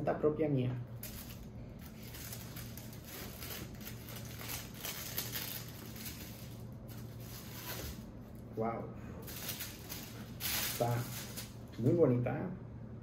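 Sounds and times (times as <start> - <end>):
faint low hum: 0.0 - 13.0
packaging rustling and crinkling: 1.0 - 8.4, 9.2 - 11.8.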